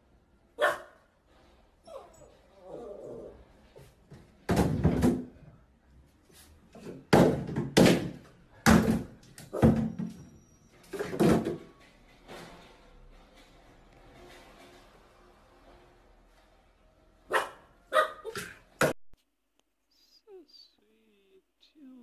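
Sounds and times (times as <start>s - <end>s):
plastic bottles clattering into tub: 4.4s - 5.4s, 6.8s - 10.2s, 10.8s - 12.6s.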